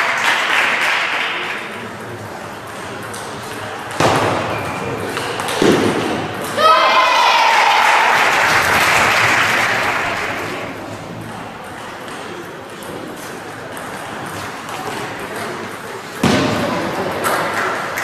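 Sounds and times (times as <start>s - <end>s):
table tennis balls ticking: 10.7s - 16.0s.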